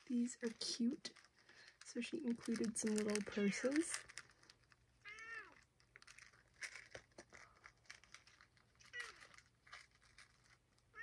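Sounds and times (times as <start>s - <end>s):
cat meowing: 5.0s - 5.6s, 8.9s - 9.3s.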